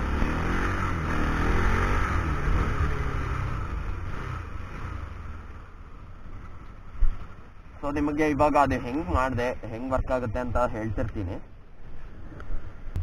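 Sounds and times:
motorcycle engine running: 0.0s - 6.9s.

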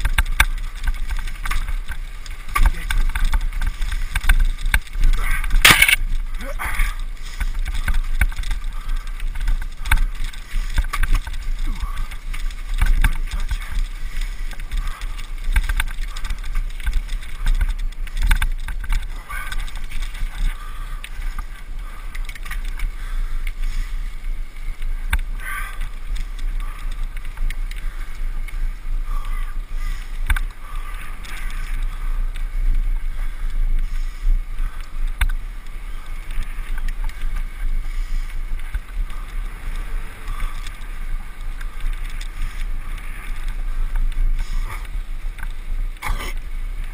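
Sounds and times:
clicks and rattles from bumpy path: 0.0s - 46.9s
wind rumbling on microphone: 0.0s - 46.9s.

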